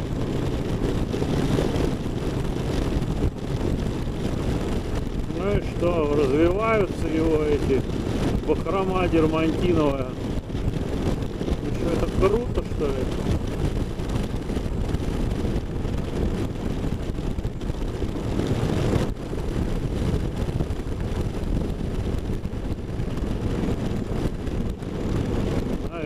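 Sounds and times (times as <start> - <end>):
motorcycle engine at speed: 0.0 - 26.0
wind rushing over microphone: 0.0 - 26.0.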